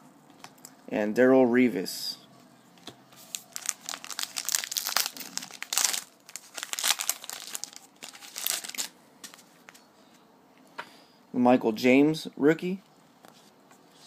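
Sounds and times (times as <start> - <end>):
wrapper tearing and crinkling: 3.3 - 8.9.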